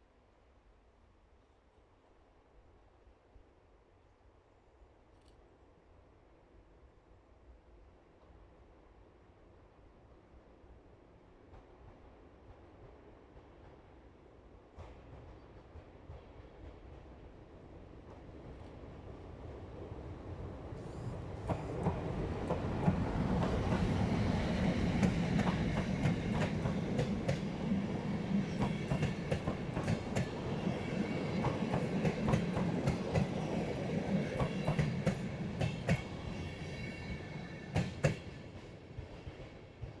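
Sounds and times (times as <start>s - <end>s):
train rumbling past: 11.1s - 40.0s.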